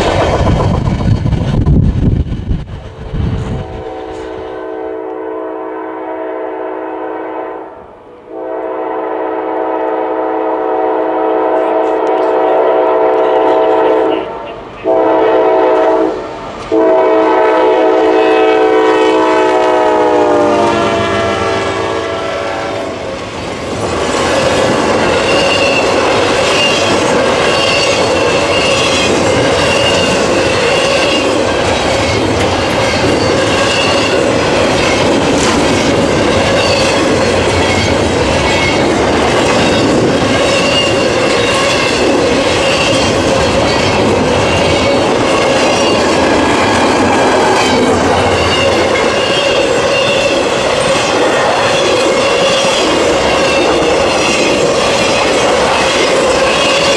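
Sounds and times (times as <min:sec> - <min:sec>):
freight cars rumbling and clacking: 0:00.0 - 0:03.6, 0:23.1 - 0:56.9
locomotive air horn: 0:03.6 - 0:23.0.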